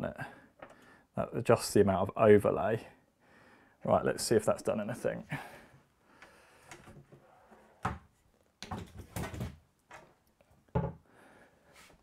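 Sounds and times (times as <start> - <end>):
cabinet door opening and shutting: 6.7 - 11.0
wooden knocks: 10.7 - 11.0.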